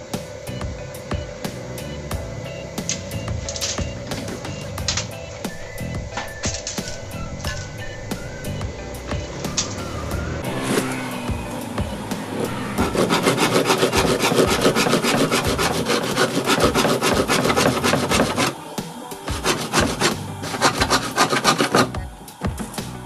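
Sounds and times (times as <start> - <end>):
hand saw cutting wood: 12.3 - 18.6, 19.2 - 22.0.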